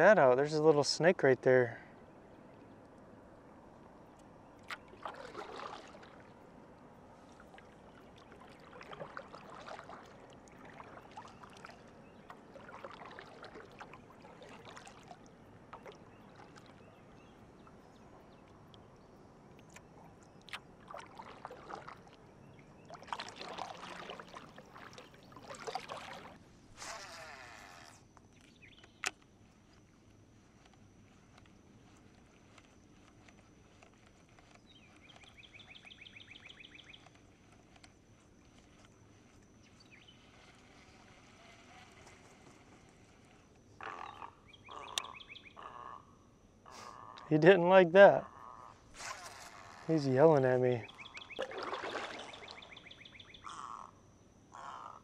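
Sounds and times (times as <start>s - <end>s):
paddle splashing in water: 4.6s - 6.5s, 7.2s - 16.9s, 20.4s - 27.1s, 51.0s - 52.8s.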